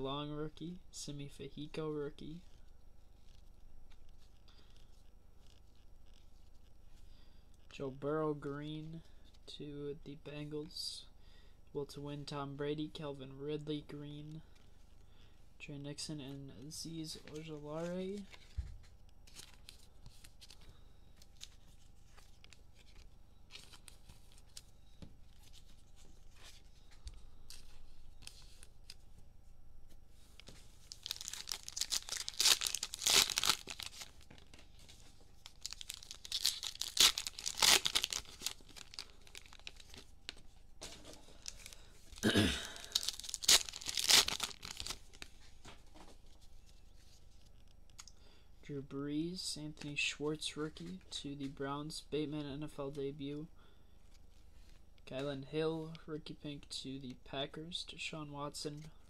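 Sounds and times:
plastic wrapper tearing and crinkling: 30.8 - 34.6, 35.4 - 40.4, 42.8 - 45.3.

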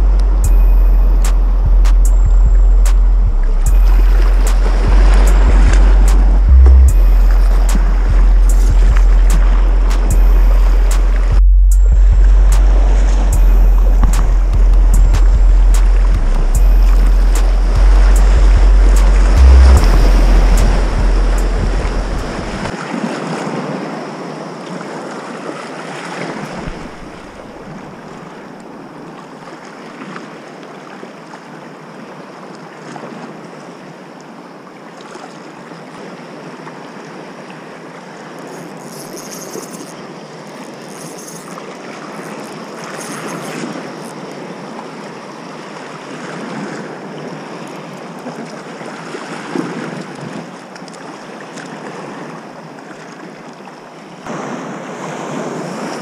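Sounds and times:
wind buffeting microphone: 0.0 - 22.7
small waves washing over rocks: 22.6 - 34.0, 35.1 - 56.0.

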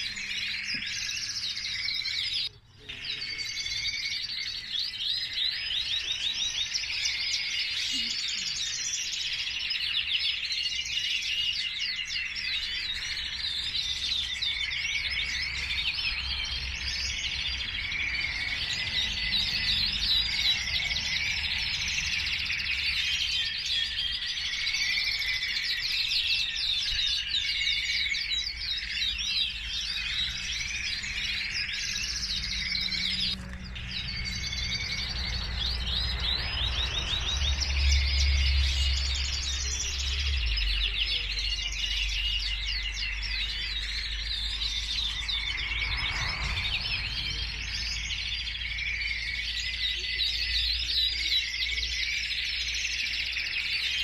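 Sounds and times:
canaries singing: 0.0 - 54.0
low rumble: 44.2 - 48.6.

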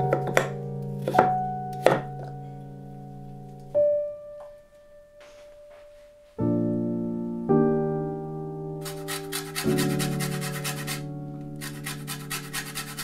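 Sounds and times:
soft piano music: 0.0 - 13.0.

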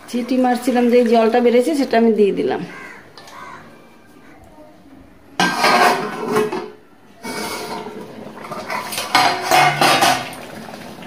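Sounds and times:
pan lid clattering on metal pan: 5.4 - 7.9, 8.5 - 10.4.

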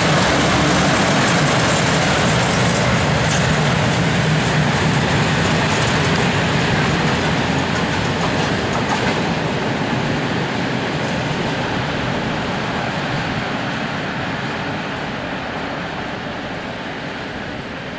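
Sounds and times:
rail joints clicking: 0.0 - 12.6
wheels rumbling on rail: 0.0 - 17.9.

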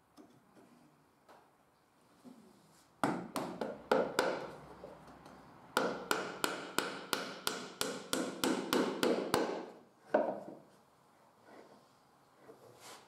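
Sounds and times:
hammer tapping metal pin into wood: 5.8 - 10.4.

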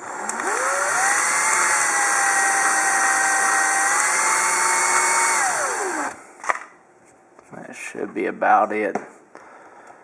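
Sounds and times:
power drill whining: 0.0 - 6.2.

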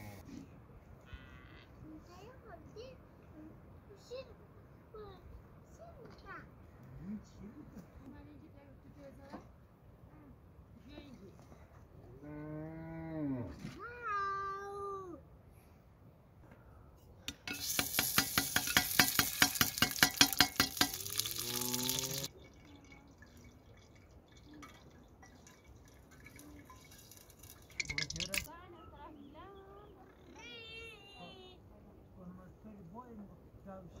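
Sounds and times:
animal calling: 1.0 - 1.8
fat sizzling and crackling: 17.5 - 28.5.

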